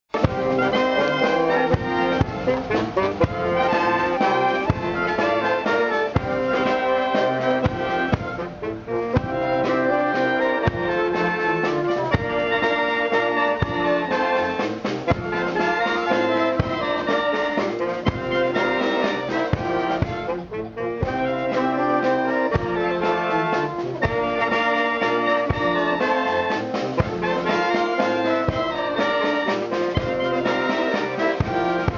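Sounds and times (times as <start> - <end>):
brass band playing slow piece: 0.0 - 31.9
drum beats: 0.0 - 31.9.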